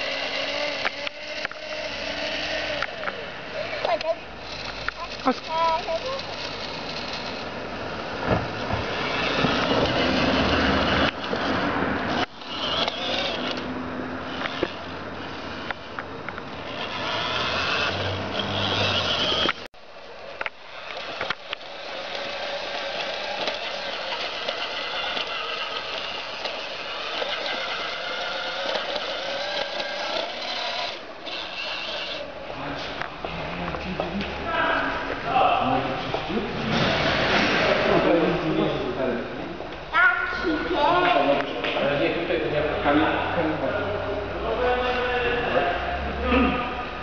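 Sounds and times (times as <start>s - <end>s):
toy electric motor running: 0.0s - 7.5s, 8.9s - 11.2s, 12.1s - 13.7s, 14.3s - 15.7s, 16.6s - 19.7s, 20.8s - 32.3s
plastic wheels rattling on paving: 3.8s - 7.5s, 20.8s - 32.2s.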